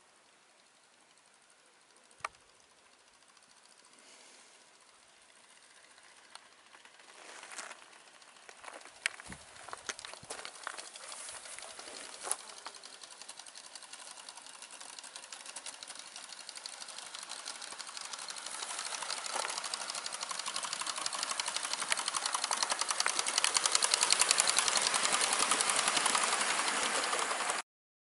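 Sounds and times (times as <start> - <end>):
model train clattering: 0.3 - 27.6.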